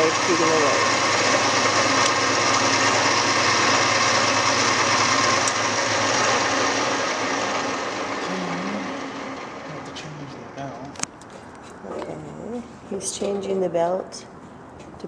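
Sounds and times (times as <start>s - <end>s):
lathe running: 0.0s - 10.8s.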